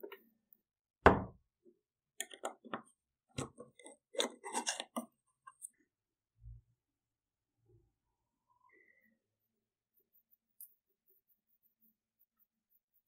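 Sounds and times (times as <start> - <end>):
thump on a wooden table: 1.0 - 1.4.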